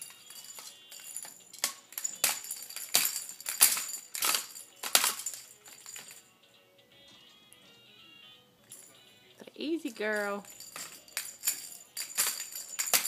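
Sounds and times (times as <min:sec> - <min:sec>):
baby jumper jingling and rattling: 0:00.0 - 0:06.2, 0:10.0 - 0:13.0.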